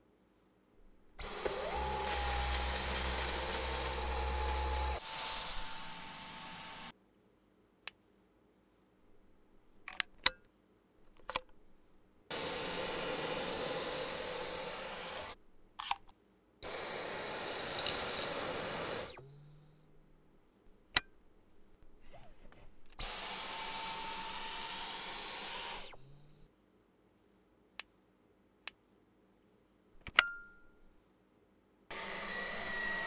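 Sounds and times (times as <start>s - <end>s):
vacuum cleaner suction whine: 1.2s - 6.9s, 12.3s - 15.4s, 16.6s - 19.4s, 23.0s - 26.4s, 31.9s - 33.0s.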